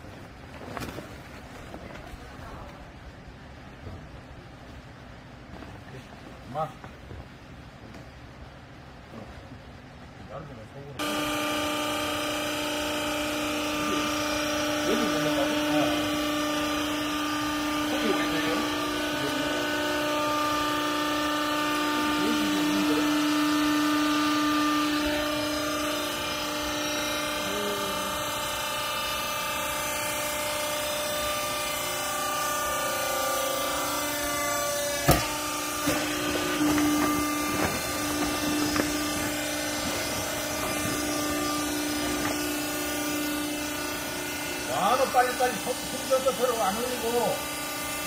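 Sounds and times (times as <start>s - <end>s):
hydraulic baler motor humming: 11.0s - 48.0s
sharp knock: 35.0s - 36.0s.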